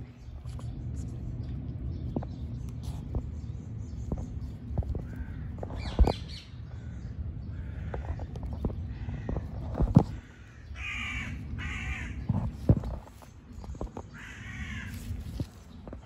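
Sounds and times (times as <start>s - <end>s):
low steady rumble: 0.0s - 16.0s
harsh animal calls: 5.0s - 12.6s.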